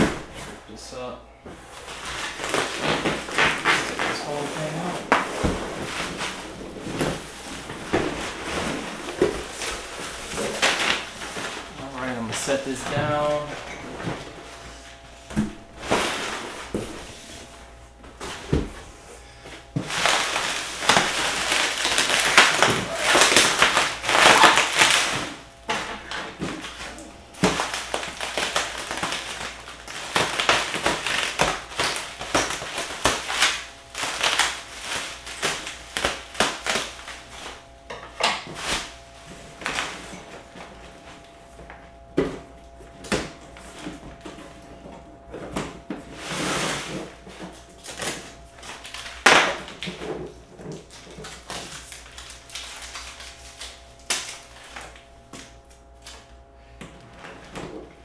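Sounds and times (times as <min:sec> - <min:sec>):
cardboard rustling and crackling: 0:01.6 - 0:18.9, 0:19.7 - 0:37.8.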